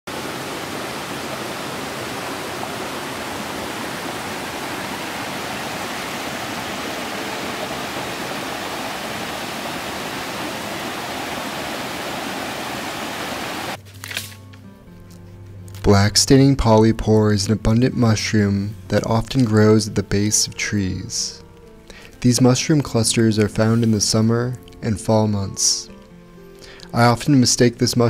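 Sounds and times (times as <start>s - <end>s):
water rushing over rocks: 0.1s - 13.8s.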